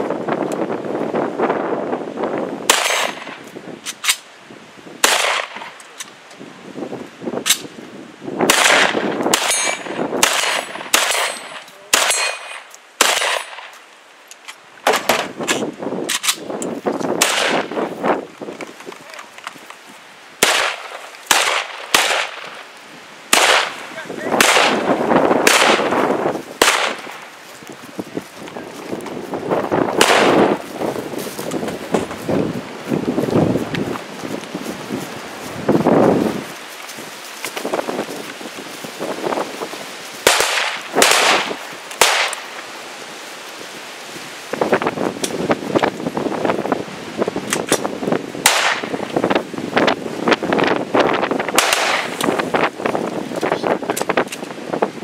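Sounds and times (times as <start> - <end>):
gunshots: 2.7 - 3.4, 5.0 - 5.7, 8.4 - 13.7, 17.2 - 17.8, 20.4 - 22.6, 23.3 - 26.0, 26.6 - 27.2, 30.0 - 30.6, 40.2 - 42.4, 48.4 - 48.9, 51.5 - 52.2
steel targets clanging: 9.4 - 9.9, 10.5 - 12.7.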